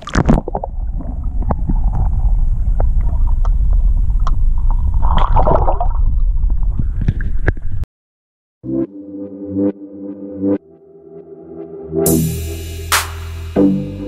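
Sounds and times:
water splash: 0.0s - 6.4s
bubbles gurgling: 0.0s - 6.8s
muffled underwater rumble: 0.0s - 7.8s.

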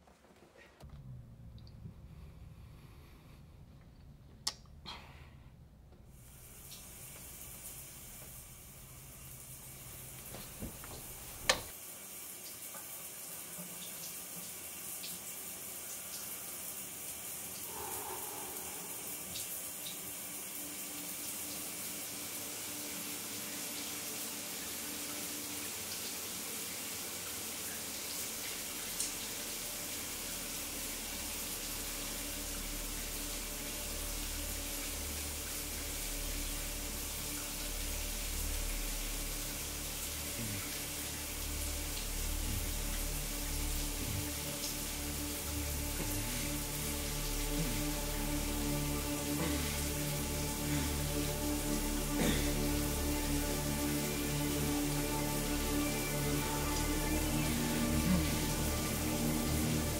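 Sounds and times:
low rumble: 0.9s - 4.4s, 17.7s - 19.8s
water running from a bathtub tap: 6.1s - 59.9s.

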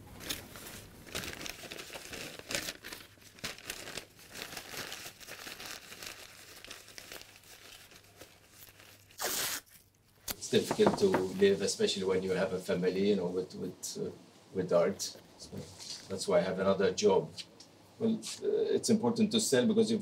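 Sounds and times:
newspaper crumpling and rustling: 0.0s - 11.6s.

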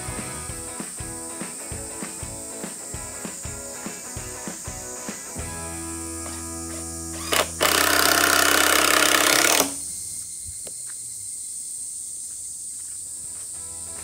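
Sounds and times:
background music: 0.0s - 8.0s
impact driver driving screw: 7.2s - 9.8s.

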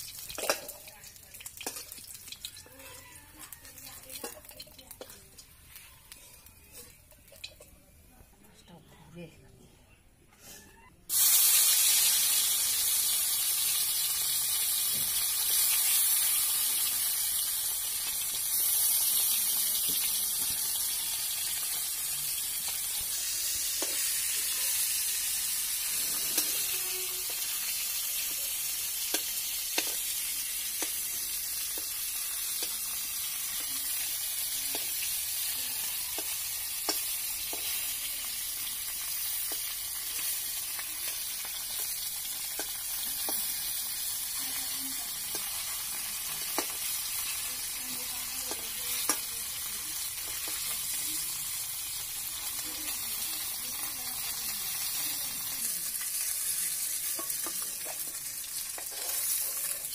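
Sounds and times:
fish frying in hot oil: 0.0s - 6.2s, 11.1s - 59.9s
spatula scraping a pan: 25.7s - 27.8s, 58.8s - 59.9s.

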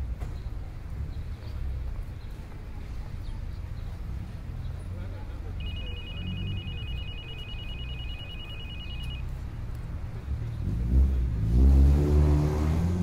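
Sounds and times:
low traffic rumble: 0.0s - 13.0s
car engine revving past: 10.5s - 13.0s.

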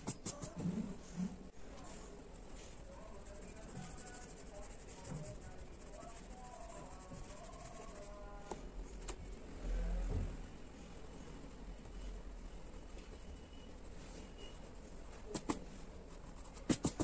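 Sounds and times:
blending tool rubbing on paper: 0.0s - 0.8s, 1.8s - 8.4s, 11.6s - 17.0s.

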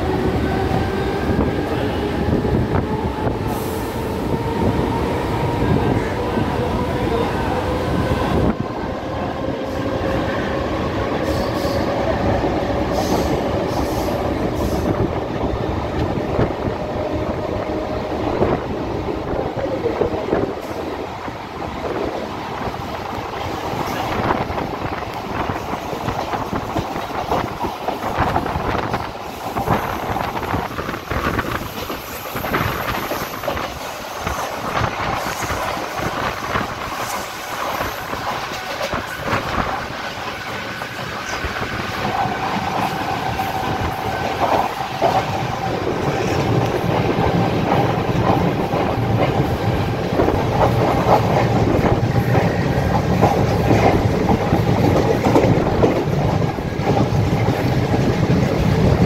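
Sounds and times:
train rolling noise: 0.0s - 59.0s.

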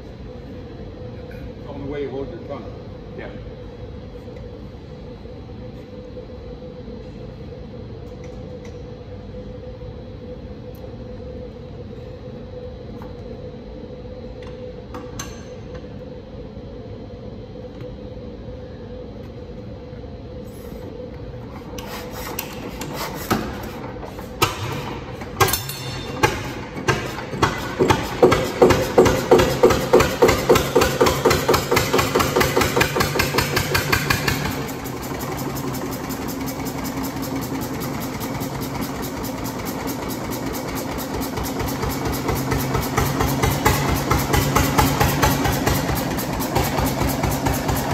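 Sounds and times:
steady hum: 0.0s - 47.9s
stationary engine running: 24.4s - 47.9s.

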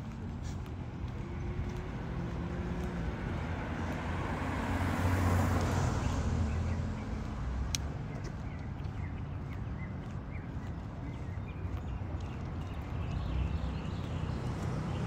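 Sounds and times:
car driving past: 1.0s - 7.3s.

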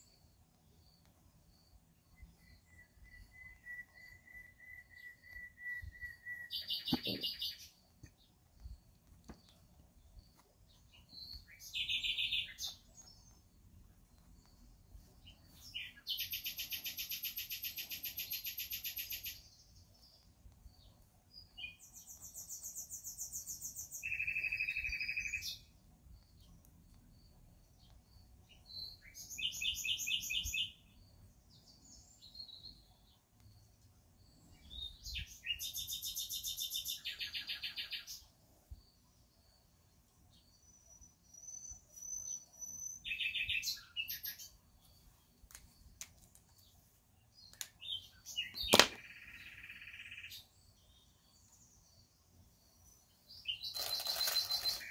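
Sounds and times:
songbird trilling: 11.2s - 12.9s, 41.3s - 44.6s, 47.4s - 50.5s, 53.4s - 54.9s.

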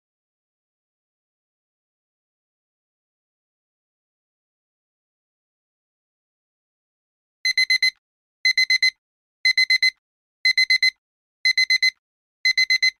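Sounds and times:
alarm clock beeping: 7.5s - 13.0s.

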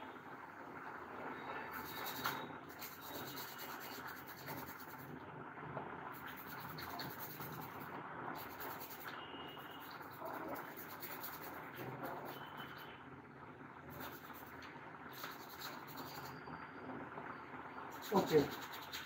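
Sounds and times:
brush scrubbing circuit board: 1.7s - 5.2s, 6.1s - 13.0s, 13.8s - 16.5s, 17.9s - 19.0s.

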